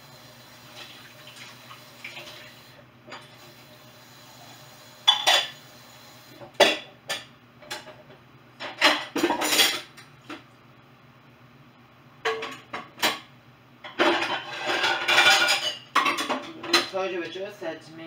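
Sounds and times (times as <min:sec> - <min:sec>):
dishes clattering in sink: 0:05.0 - 0:05.6, 0:06.4 - 0:08.0, 0:08.6 - 0:09.9, 0:12.2 - 0:17.0.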